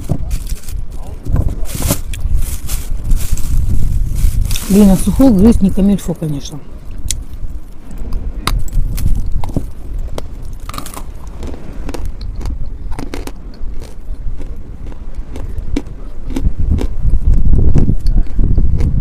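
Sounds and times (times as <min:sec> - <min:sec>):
chalk crunching: 0:00.0 - 0:05.4.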